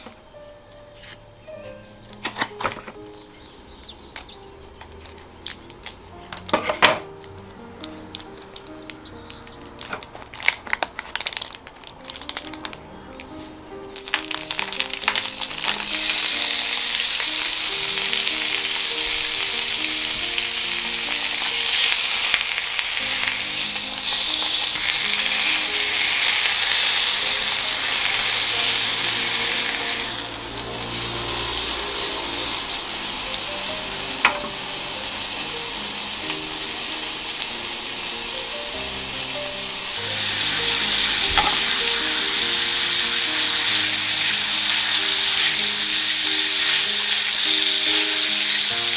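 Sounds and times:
meat sizzling on a griddle: 14.0 - 48.9.

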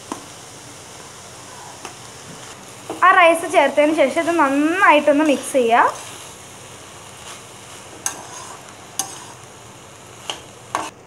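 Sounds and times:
light sizzle: 0.0 - 11.0
spoon stirring in metal pan: 4.4 - 9.5, 10.2 - 11.0.

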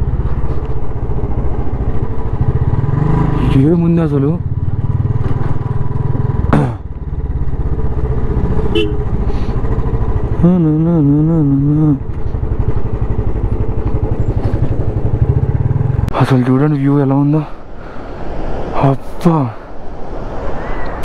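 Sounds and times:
motorcycle engine rumbling: 0.0 - 18.7
man's voice: 10.4 - 12.1.

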